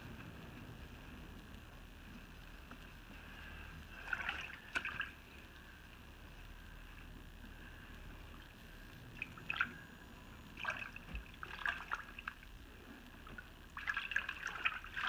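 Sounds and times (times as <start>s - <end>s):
water splashing in a plastic tub: 3.9s - 5.4s, 9.2s - 9.9s, 10.5s - 12.6s, 13.2s - 15.0s.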